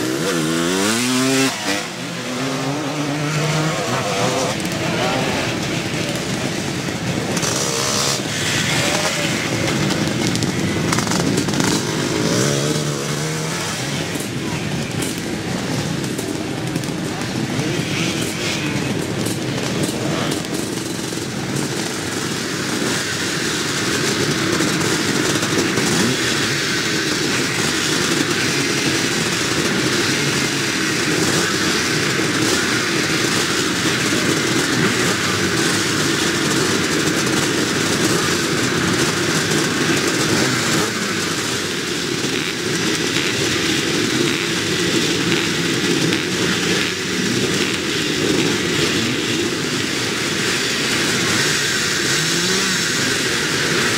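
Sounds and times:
motocross bike engines: 0.0 - 53.9.

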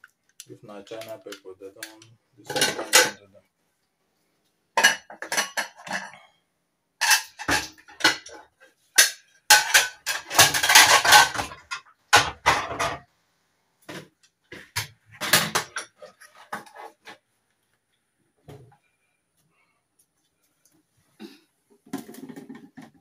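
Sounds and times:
steel pots and utensils clattering: 2.4 - 3.2, 4.8 - 6.3, 7.0 - 13.1, 14.6 - 17.2.

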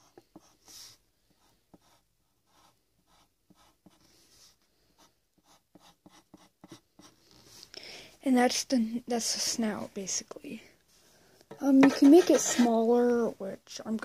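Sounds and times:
pencil scratching on paper: 0.0 - 7.5, 11.6 - 12.8.

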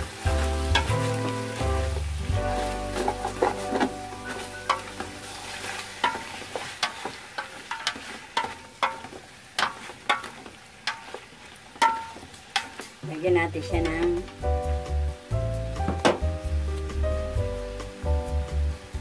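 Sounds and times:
chicken sizzling: 0.0 - 19.0
spatula clanking against metal pot: 6.0 - 11.2, 11.8 - 12.9.

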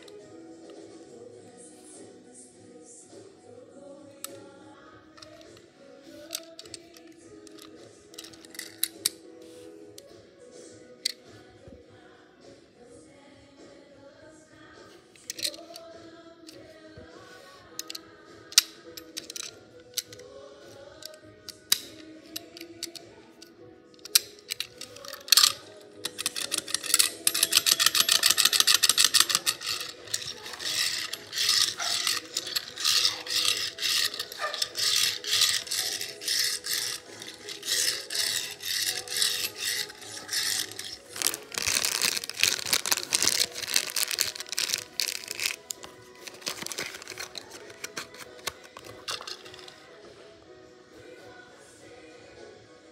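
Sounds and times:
quiet background music: 0.0 - 52.9
toy car wheels rolling on stone: 6.2 - 9.1, 15.2 - 15.8, 18.6 - 20.2, 21.5 - 23.0, 24.0 - 49.8
fast rattling: 24.1 - 49.8.

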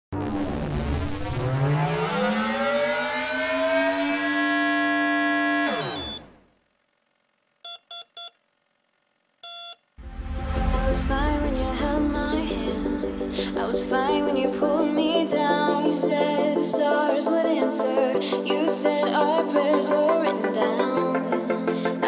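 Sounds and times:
sweeping electronic tone: 0.2 - 6.4, 10.0 - 15.9
short beeps: 5.7 - 6.3, 7.6 - 8.4, 9.4 - 9.8
music: 10.0 - 22.0.

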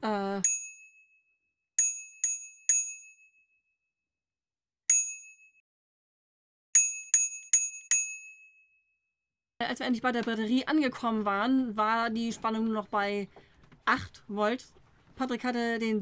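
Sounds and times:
bright bell-like dings: 0.4 - 3.7, 4.9 - 5.6, 6.8 - 8.9.

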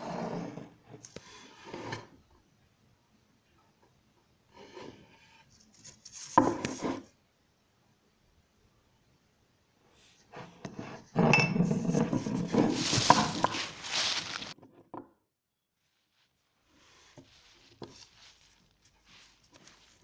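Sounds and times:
body rolling on dry leaves: 12.7 - 14.6
footsteps rustling in leaves: 12.7 - 14.6, 17.0 - 20.0.

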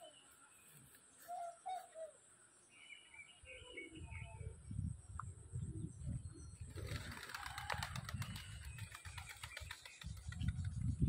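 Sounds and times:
pigeon wings flapping: 6.7 - 10.6.

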